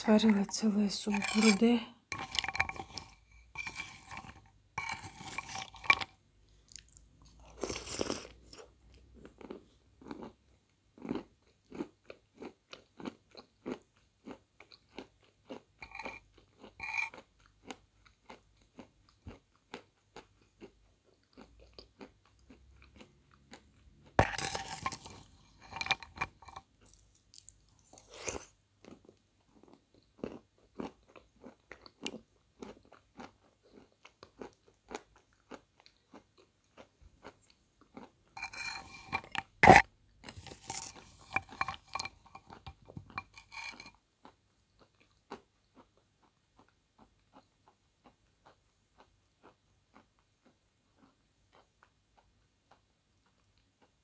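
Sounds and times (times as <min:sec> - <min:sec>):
metal spoon clinking ceramic bowl: 0:01.0 - 0:06.1, 0:24.2 - 0:26.6, 0:38.4 - 0:39.8, 0:40.7 - 0:43.9
chewing and wet mouth clicks: 0:05.1 - 0:10.4, 0:25.8 - 0:38.1.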